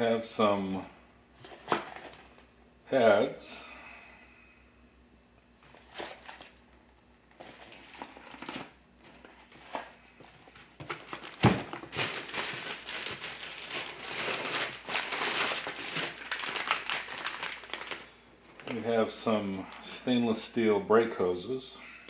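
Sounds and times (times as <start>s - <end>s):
plastic packaging crinkling: 7.3s - 18.8s
box thumping on workbench: 10.8s - 11.8s.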